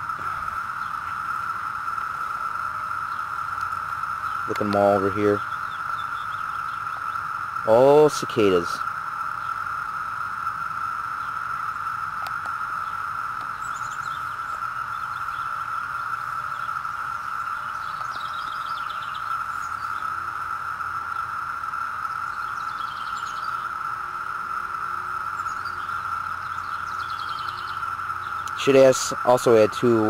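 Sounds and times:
cicadas droning: 0:00.0 - 0:30.0
high bird chirps: 0:02.2 - 0:08.5, 0:12.7 - 0:20.2, 0:22.0 - 0:23.8, 0:25.3 - 0:28.6.

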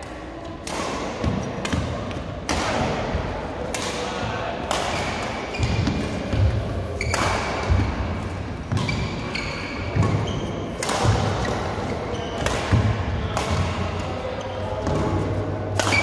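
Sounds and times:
rackets striking shuttlecock: 0:08.7 - 0:16.0.

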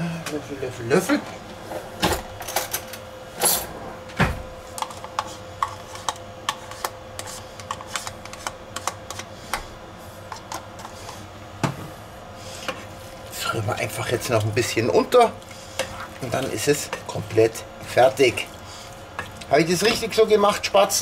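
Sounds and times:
spoon scraping and tapping tub: 0:04.8 - 0:09.3.

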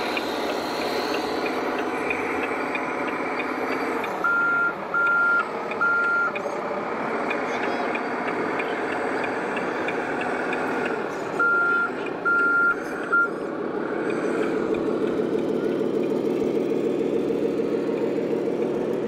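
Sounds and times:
high reversing beeps: 0:00.0 - 0:06.4, 0:11.3 - 0:13.4
diesel engine drone: 0:00.0 - 0:19.0.

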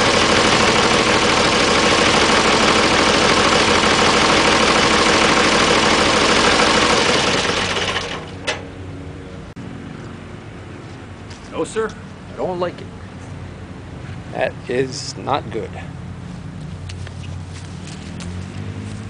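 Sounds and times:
tractor engine running: 0:00.0 - 0:09.5.

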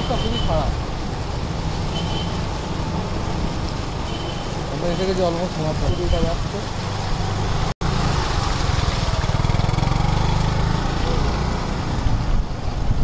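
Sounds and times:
water churning around wheels: 0:00.0 - 0:13.0
scooter engine running: 0:09.2 - 0:11.7.

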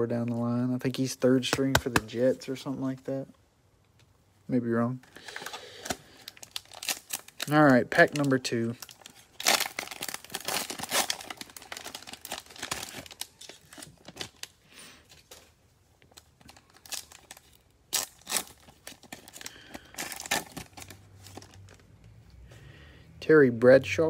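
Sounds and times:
plastic wrapper tearing and crinkling: 0:05.2 - 0:21.9.

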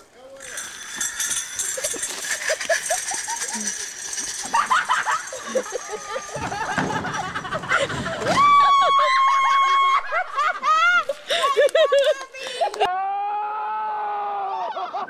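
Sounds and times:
excited voices: 0:01.8 - 0:15.0
long high scream: 0:08.3 - 0:10.1, 0:12.9 - 0:14.6.

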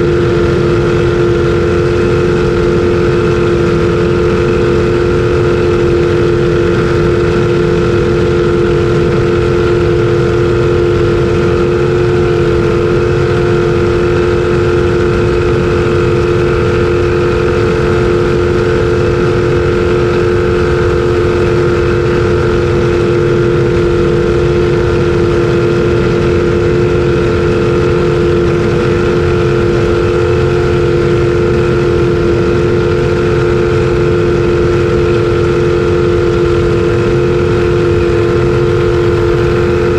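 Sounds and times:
jet boat engine flat out: 0:00.0 - 0:39.9
rushing noise: 0:37.3 - 0:39.9.

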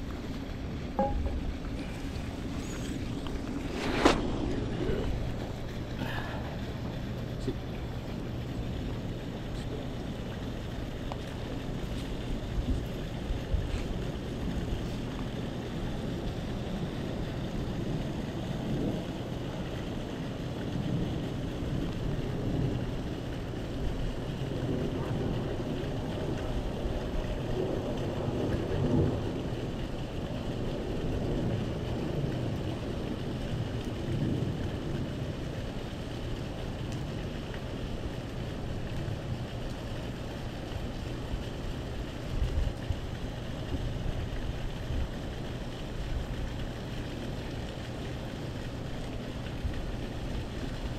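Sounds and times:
low rumbling: 0:00.0 - 0:23.8
wind buffeting microphone: 0:00.0 - 0:46.9.

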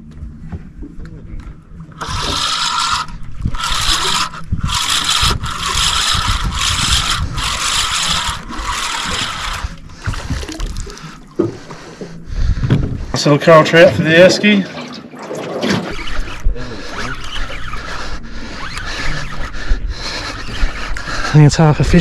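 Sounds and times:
fishing reel whirring: 0:01.9 - 0:11.7, 0:15.8 - 0:21.4.

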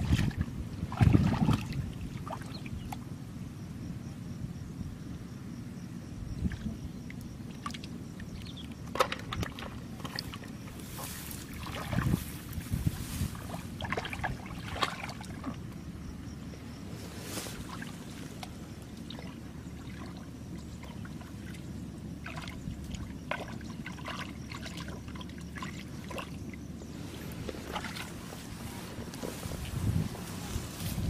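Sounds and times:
hands splashing in muddy water: 0:00.0 - 0:02.5, 0:13.0 - 0:15.6
wind rumble on microphone: 0:00.0 - 0:31.0.

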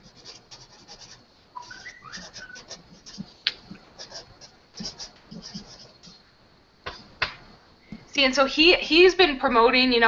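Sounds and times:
bird whistled chirps: 0:01.6 - 0:02.7.

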